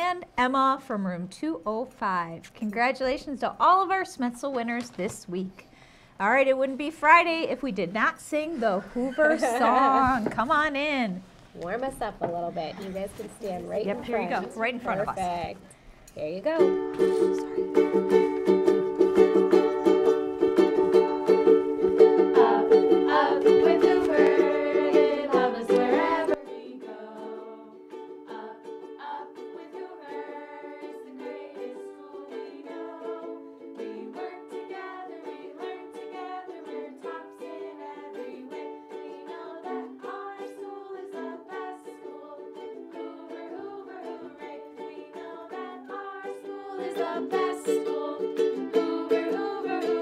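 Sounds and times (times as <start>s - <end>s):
ukuleles strumming chords: 2.1s - 11.0s, 12.0s - 50.0s
children and adults singing: 20.8s - 50.0s.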